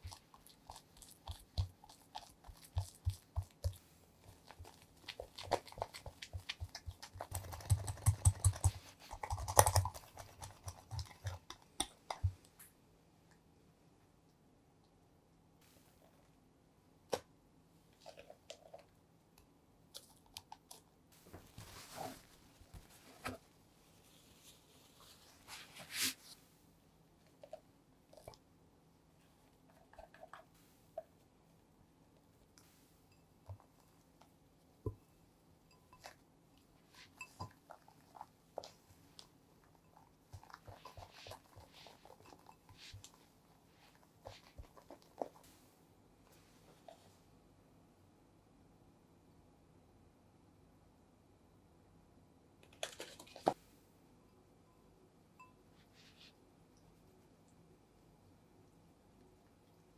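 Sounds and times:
whisk tapping glass bowl: 0:40.4 - 0:43.0.

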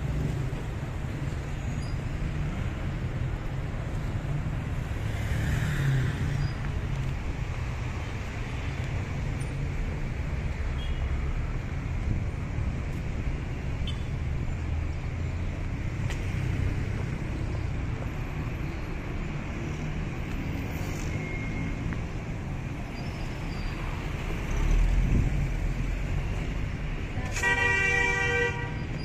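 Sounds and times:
street traffic: 0:00.0 - 0:29.0.

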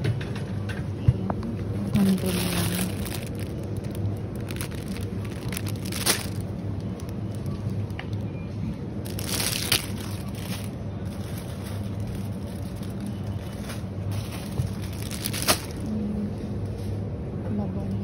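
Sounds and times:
steady low hum: 0:00.0 - 0:18.0
shopping cart rolling: 0:01.8 - 0:06.5, 0:09.1 - 0:15.9
plastic basket rattling: 0:02.0 - 0:06.5, 0:09.1 - 0:15.9.

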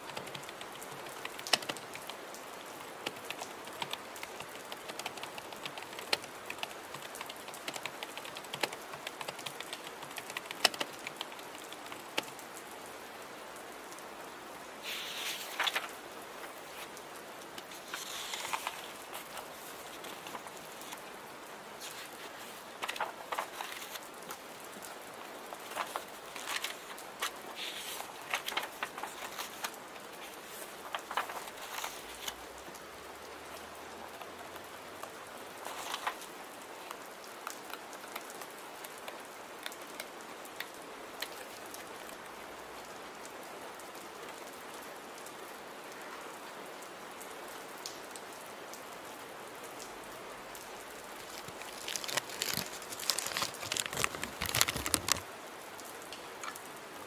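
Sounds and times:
steady rain: 0:00.0 - 0:57.0
paper rustling: 0:03.0 - 0:12.3, 0:14.8 - 0:17.0, 0:17.6 - 0:21.1, 0:21.8 - 0:24.5, 0:25.5 - 0:32.4, 0:35.6 - 0:36.3, 0:51.0 - 0:55.2.

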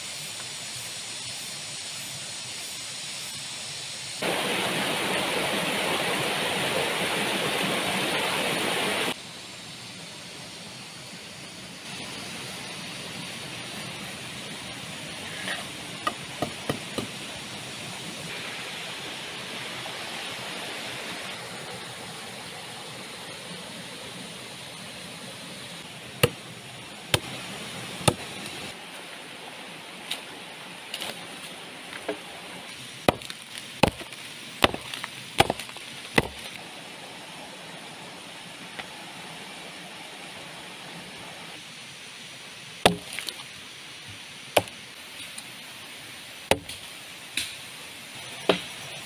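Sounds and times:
rushing water: 0:04.2 - 0:09.2, 0:11.1 - 0:49.0
blade chopping into wood: 0:28.0 - 0:28.2, 0:33.1 - 0:36.6, 0:42.9 - 0:43.3, 0:46.5 - 0:46.8.

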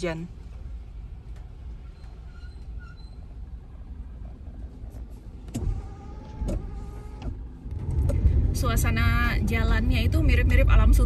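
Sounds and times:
low steady rumble: 0:00.0 - 0:11.0
wiper motor whine: 0:04.9 - 0:11.0.

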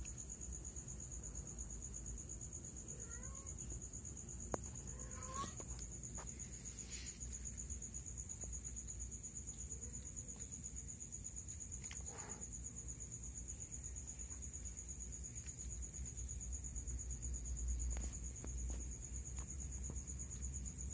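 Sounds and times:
crickets trilling: 0:00.0 - 0:20.9
cat mewing: 0:02.9 - 0:03.6, 0:04.9 - 0:05.8.

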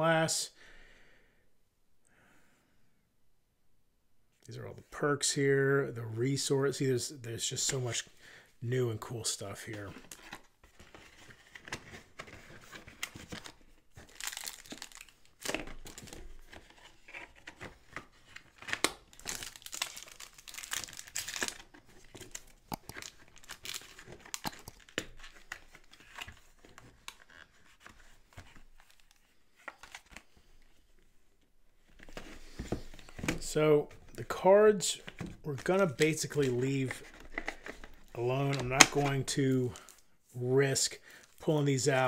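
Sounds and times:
packaging crinkling and rustling: 0:09.6 - 0:30.8, 0:34.9 - 0:40.1.

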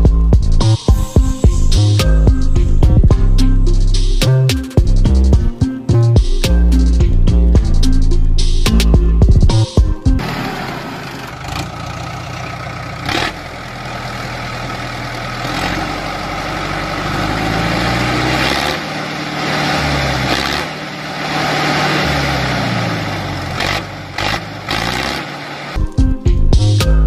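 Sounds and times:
tractor engine revving: 0:10.2 - 0:25.9.

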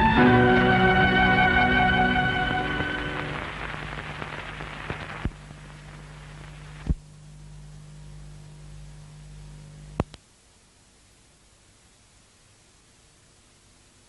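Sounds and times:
low hum: 0:00.0 - 0:11.6
film soundtrack hiss: 0:00.0 - 0:14.0
sharp pops: 0:02.7 - 0:07.1.

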